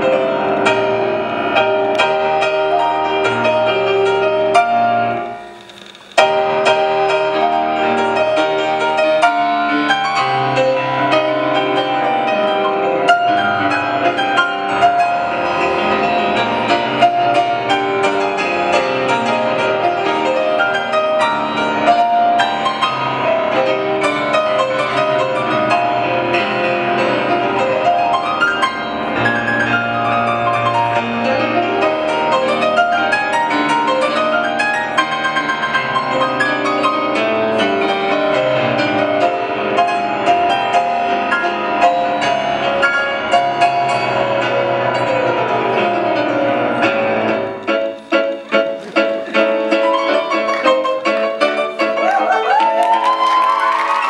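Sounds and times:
grand piano playing: 0.0s - 54.0s.

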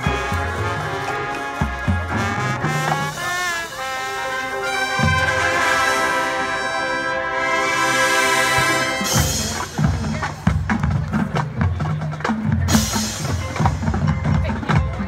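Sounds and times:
percussion hits: 0.0s - 6.4s, 7.8s - 15.0s
brass section playing: 0.0s - 10.2s
drums: 0.0s - 15.0s.

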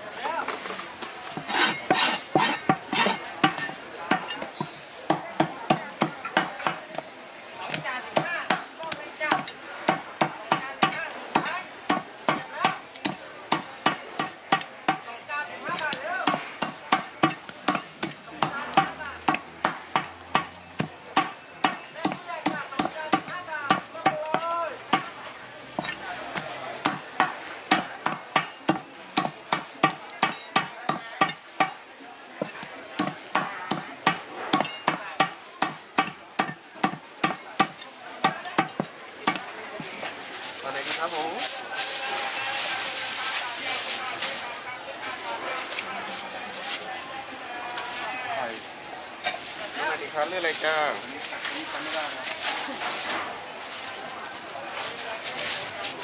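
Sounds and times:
cleaver chopping chicken on wooden block: 1.4s - 7.0s, 25.8s - 31.8s, 32.4s - 39.5s.

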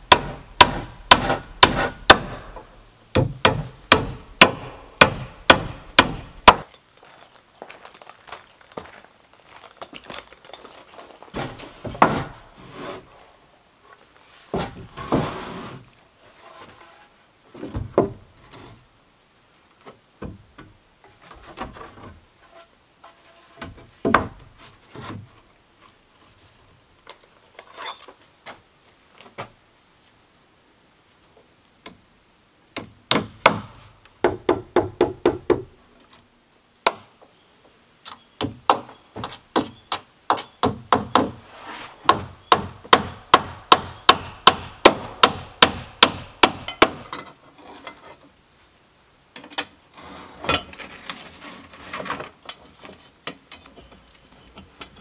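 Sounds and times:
hammer driving nails: 0.1s - 2.6s, 3.2s - 6.7s, 42.1s - 47.2s
boards knocking and scraping: 11.4s - 13.1s, 14.5s - 15.8s.

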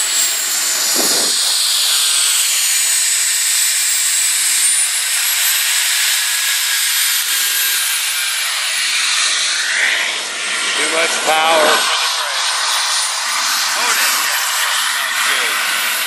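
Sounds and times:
rushing hiss: 0.0s - 3.1s, 8.5s - 16.0s
jet turbine high whine: 0.0s - 16.0s.

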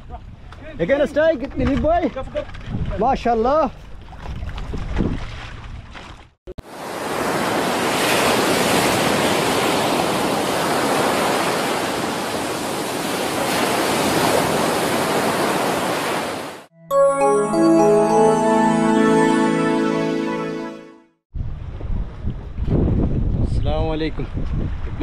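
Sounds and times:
ocean surf breaking: 6.6s - 16.6s
wind on microphone: 21.4s - 25.0s.

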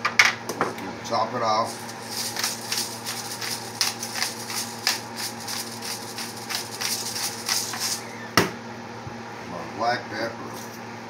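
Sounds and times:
pepper mill grinding: 1.6s - 8.1s.

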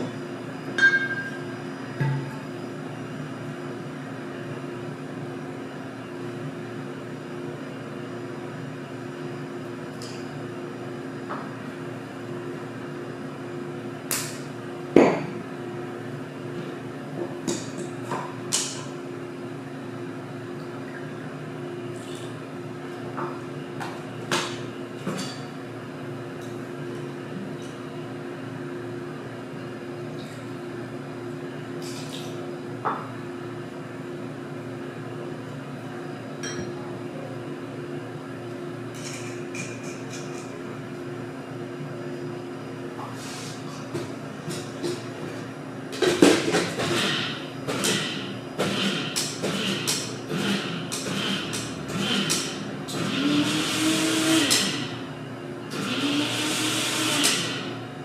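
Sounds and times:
glassware knocks and clinks: 0.8s - 1.4s.

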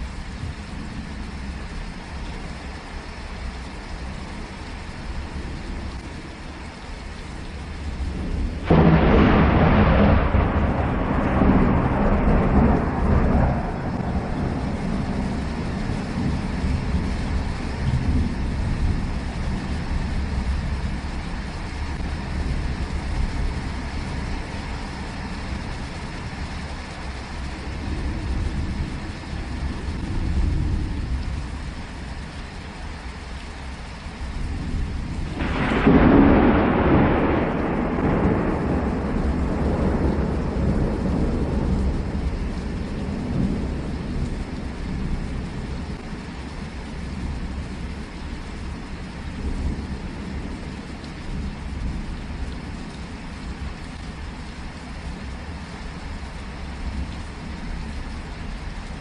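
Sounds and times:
steady rain: 0.0s - 59.0s
low rolling thunder: 7.5s - 32.1s, 34.0s - 55.6s
loud thunderclap: 8.6s - 16.4s, 35.3s - 42.4s.

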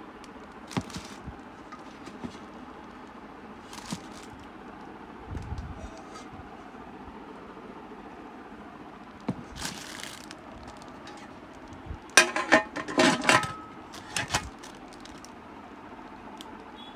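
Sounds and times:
metal lid clinking and knocking: 12.2s - 14.4s.

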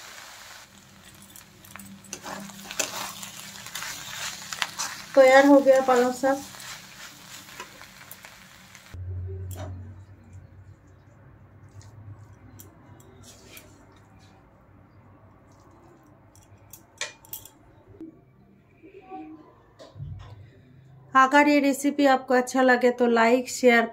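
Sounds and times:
low hum: 9.0s - 13.1s.

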